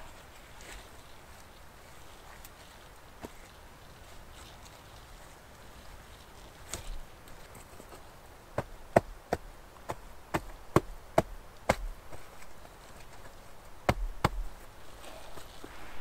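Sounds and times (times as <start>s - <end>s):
axe chopping wood: 8.6s - 12.0s, 13.8s - 14.5s.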